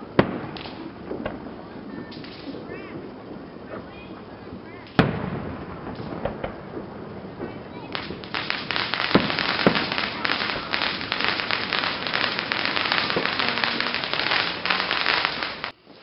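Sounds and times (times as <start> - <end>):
firework bangs: 0.0 - 16.0
fireworks crackling: 0.0 - 16.0.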